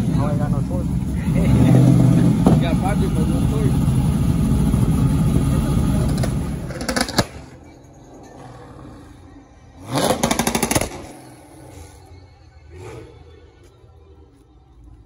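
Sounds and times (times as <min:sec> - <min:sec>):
engine revving with pulsing beat: 0:00.0 - 0:07.2, 0:09.7 - 0:11.9
truck engine running loud: 0:00.0 - 0:07.6.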